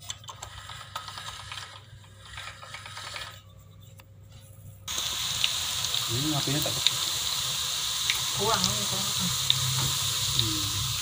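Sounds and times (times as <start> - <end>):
pasta roller clicking and rubbing: 0.0 - 3.5
dough frying in hot oil: 4.9 - 11.0.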